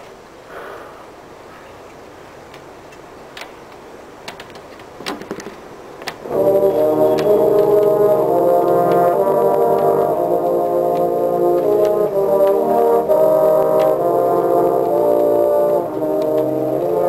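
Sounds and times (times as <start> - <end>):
brass line sustained chord: 6.2 - 17.0.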